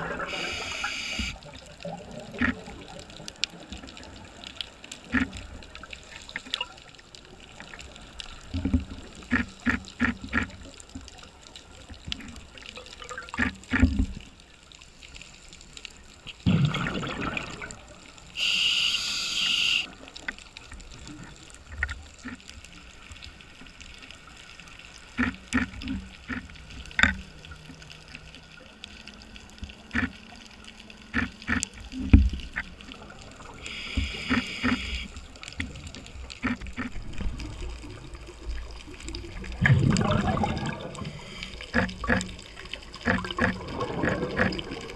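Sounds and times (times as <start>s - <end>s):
exhaled bubbles rushing underwater: 0.0s - 10.7s, 16.4s - 18.3s, 31.1s - 44.9s
regulator hissing on inhale: 0.2s - 1.4s, 18.4s - 19.9s, 33.6s - 35.2s, 41.0s - 41.8s
pops and clicks: 0.3s - 2.8s, 5.0s - 5.5s, 8.6s - 11.1s, 12.2s - 14.2s, 25.1s - 27.3s, 29.9s - 30.2s, 31.1s - 32.8s, 33.7s - 37.1s, 39.4s - 44.9s.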